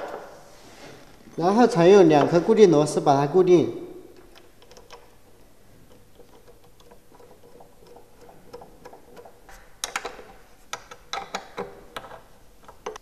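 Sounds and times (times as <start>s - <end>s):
small metallic clicks: 4.2s - 5.1s.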